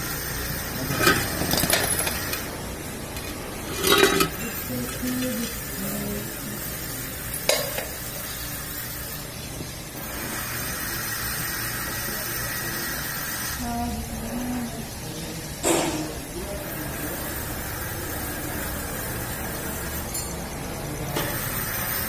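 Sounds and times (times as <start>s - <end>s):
metallic clatter: 0.9s - 2.5s, 3.1s - 5.5s.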